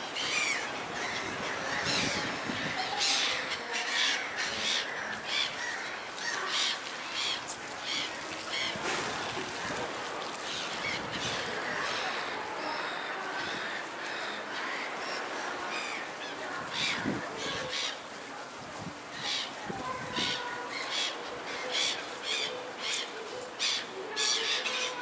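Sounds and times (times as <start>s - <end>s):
gulls calling: 0.0s - 18.2s.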